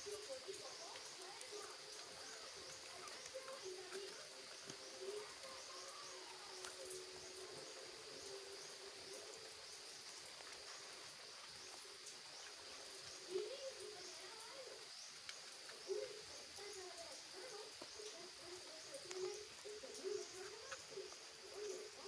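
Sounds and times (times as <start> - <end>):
animal calls: 0.0 - 7.7, 15.6 - 22.0
faint high chirping: 0.0 - 22.0.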